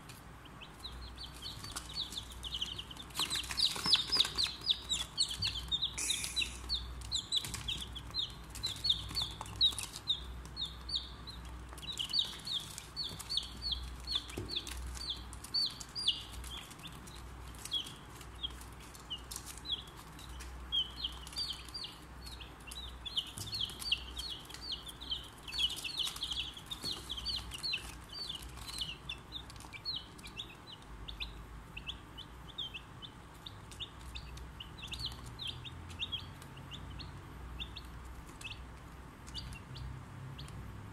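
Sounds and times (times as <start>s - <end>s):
chicks peeping: 0.0s - 40.9s.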